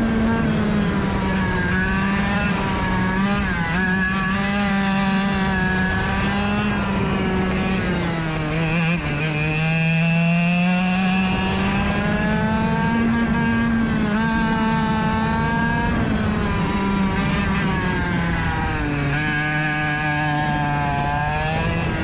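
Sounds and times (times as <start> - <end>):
kart engine revving: 0.0 - 22.0.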